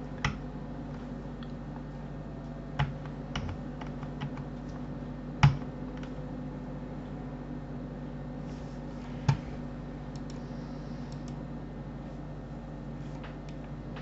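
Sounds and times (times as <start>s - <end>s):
steady low hum: 0.0s - 14.0s
keyboard keys clicking: 2.8s - 4.8s.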